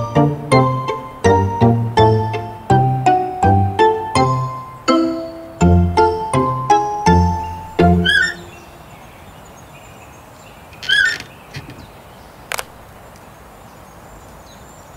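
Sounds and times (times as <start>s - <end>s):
plucked music note: 0.0s - 8.5s
faint steady hiss: 0.0s - 14.9s
short bird calls: 8.0s - 13.2s
sharp click: 12.5s - 12.8s.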